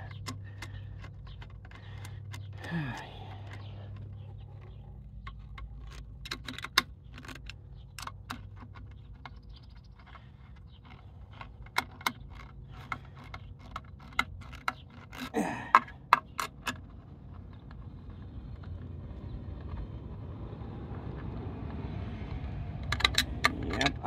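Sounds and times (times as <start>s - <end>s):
metallic clicks and taps: 0.0s - 17.8s, 22.8s - 24.0s.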